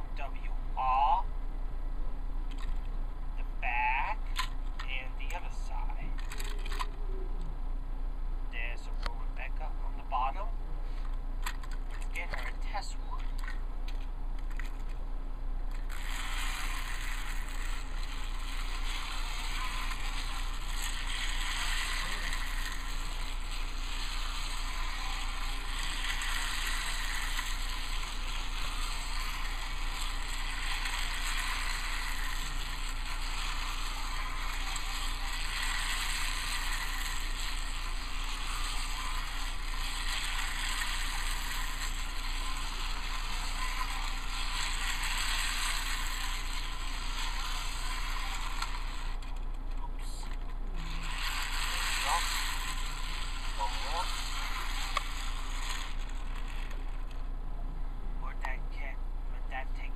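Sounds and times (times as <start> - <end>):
low hum: 0.0 - 59.9
toy train wheels rattling on track: 4.1 - 7.0, 11.4 - 15.0, 15.7 - 57.3.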